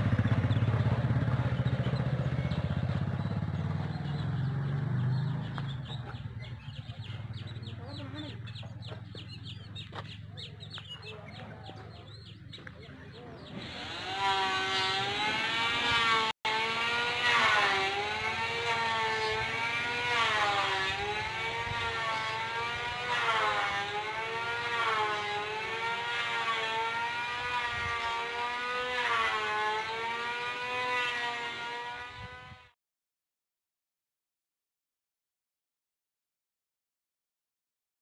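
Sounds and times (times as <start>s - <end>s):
vehicle engine running: 0.0s - 28.4s.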